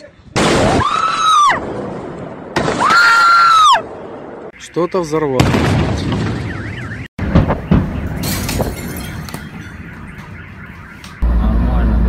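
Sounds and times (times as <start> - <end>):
sharp bangs: 5.3 - 11.2
car alarm wailing: 6.2 - 11.4
moving car rumble: 6.4 - 12.0.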